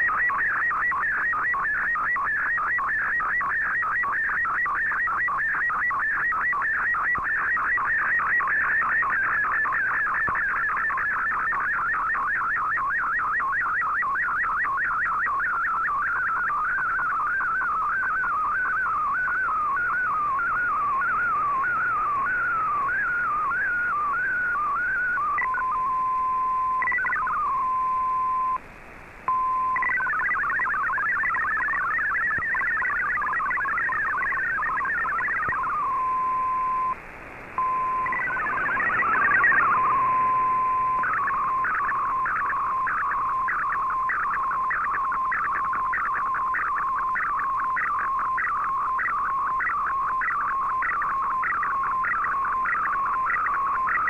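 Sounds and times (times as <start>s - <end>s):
warbling data tones: 0.0s - 28.6s, 29.3s - 54.0s
static: 0.0s - 54.0s
steady tone: 35.0s - 44.0s
rising chirps: 37.6s - 44.9s.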